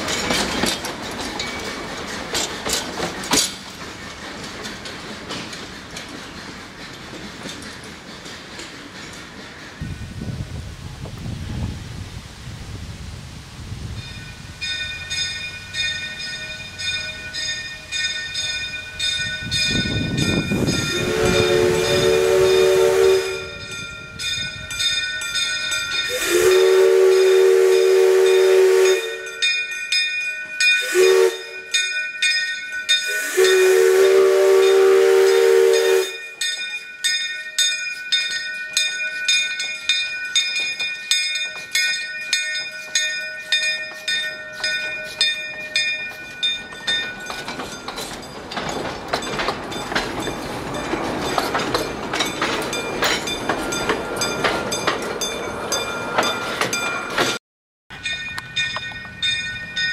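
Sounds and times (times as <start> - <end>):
steam locomotive chuffing: 0.0 - 11.2, 14.7 - 29.5, 32.9 - 36.6
steam whistle blasts: 20.9 - 23.8, 26.1 - 29.4, 30.8 - 31.7, 33.0 - 36.4.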